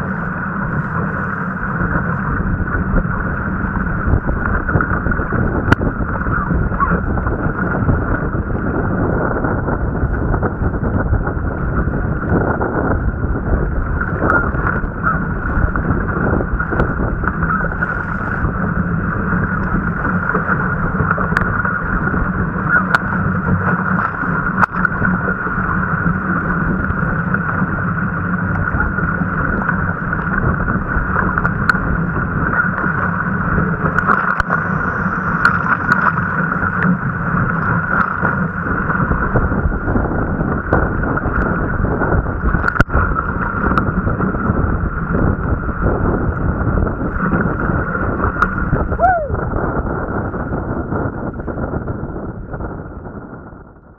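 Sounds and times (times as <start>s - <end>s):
muffled rush of wind and water: 0.0s - 53.9s.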